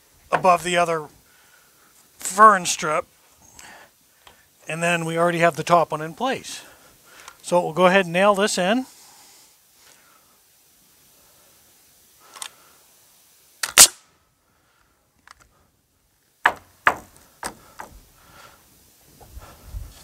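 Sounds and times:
pneumatic nailer firing nails: 13.6 - 14.0.

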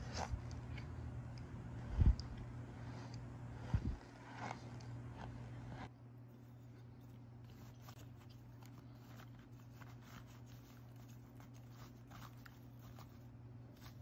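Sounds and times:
low hum: 0.0 - 14.0
dry cornstarch chunks crunching: 3.9 - 14.0.

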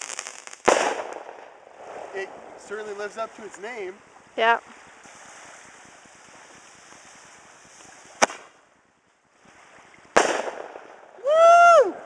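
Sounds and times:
firework bang: 0.0 - 2.7, 8.1 - 8.5, 10.2 - 11.1
firework hissing: 0.0 - 3.0, 5.0 - 8.4.

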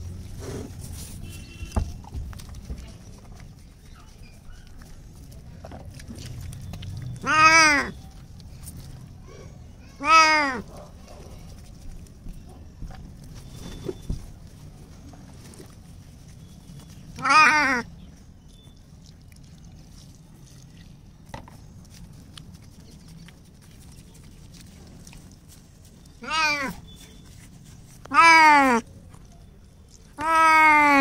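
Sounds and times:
cat meowing: 7.2 - 8.0, 9.9 - 10.6, 17.2 - 17.8, 26.2 - 26.8, 28.1 - 28.8, 30.2 - 31.0.

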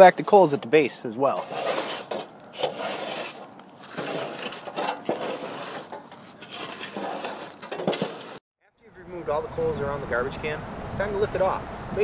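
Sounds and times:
coals clinking and rattling: 0.0 - 8.4
shovel scraping through charcoal: 0.0 - 8.4.

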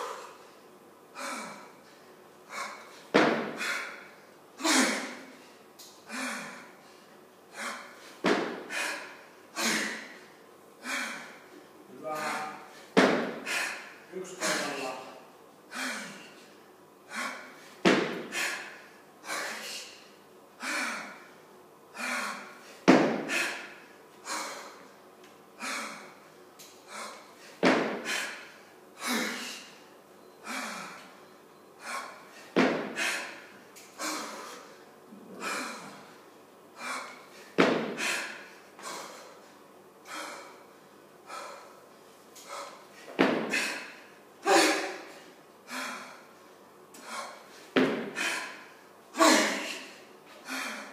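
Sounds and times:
woman breathing hard: 0.0 - 14.7, 15.7 - 24.9, 25.6 - 50.9
kettlebell thud: 3.1 - 3.6, 8.2 - 8.6, 13.0 - 13.4, 17.8 - 18.3, 22.9 - 23.4, 27.6 - 28.1, 32.6 - 33.0, 37.6 - 38.1, 43.2 - 43.6, 47.8 - 48.2.

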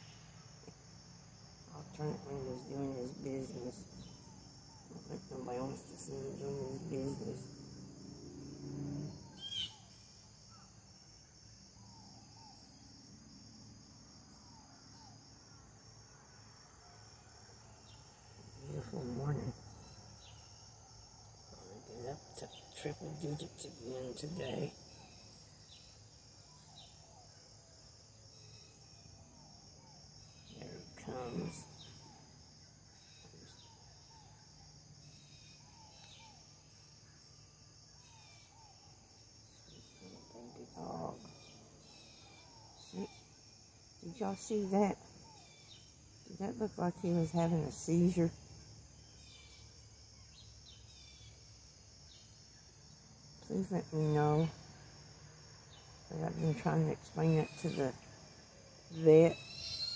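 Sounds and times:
crickets trilling: 0.0 - 59.9
high insect drone: 0.0 - 59.9
faint bird chirps: 8.9 - 10.8, 28.3 - 43.4, 58.9 - 59.9.

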